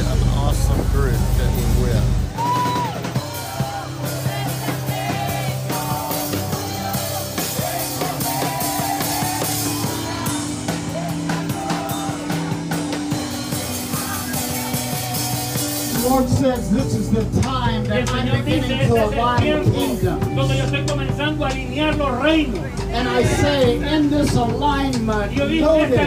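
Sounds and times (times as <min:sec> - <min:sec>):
drum kit with cymbals: 0:00.0 - 0:26.0
group singing: 0:03.4 - 0:12.5.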